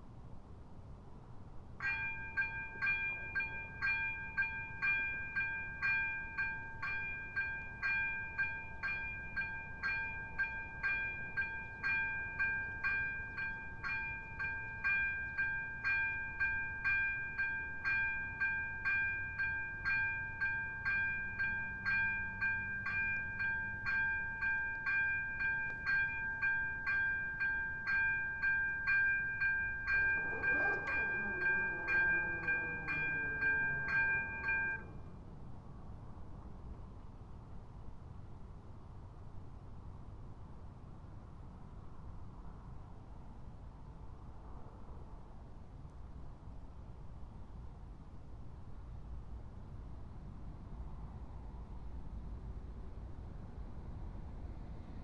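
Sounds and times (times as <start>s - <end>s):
level crossing warning bell: 1.8s - 35.3s.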